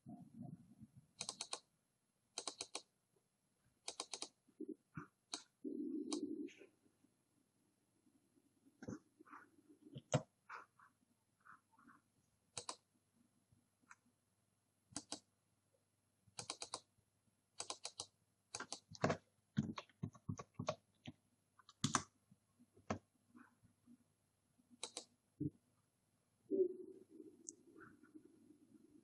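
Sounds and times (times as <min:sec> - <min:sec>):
computer mouse clicks: 0:01.2 - 0:01.7, 0:02.4 - 0:02.9, 0:03.8 - 0:04.4, 0:05.2 - 0:06.3, 0:12.5 - 0:12.9, 0:14.9 - 0:15.3, 0:16.3 - 0:16.9, 0:17.6 - 0:22.1, 0:24.8 - 0:25.1
keyboard clicks: 0:01.2 - 0:01.7, 0:02.4 - 0:02.9, 0:03.8 - 0:04.4, 0:05.3 - 0:06.3, 0:12.5 - 0:12.9, 0:14.9 - 0:15.3, 0:16.3 - 0:16.9, 0:17.6 - 0:22.1, 0:24.8 - 0:25.1.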